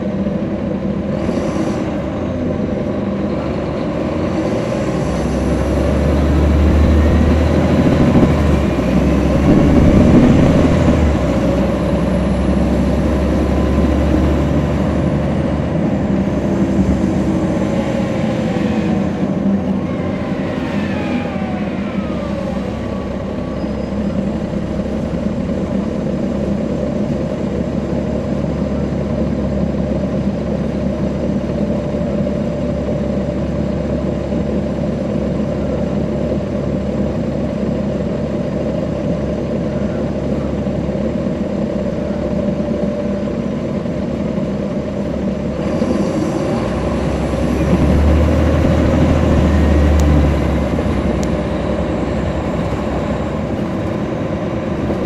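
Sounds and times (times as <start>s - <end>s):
bus engine droning: 0.0s - 55.0s
transmission whine falling: 5.8s - 11.9s, 47.4s - 55.0s.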